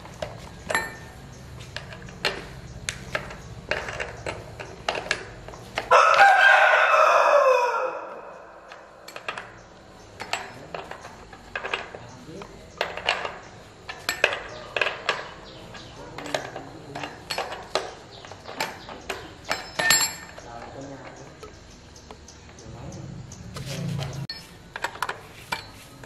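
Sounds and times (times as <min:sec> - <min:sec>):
tool clicks and knocks: 0:00.0 - 0:06.2, 0:08.7 - 0:22.2
rooster crowing: 0:05.9 - 0:09.0.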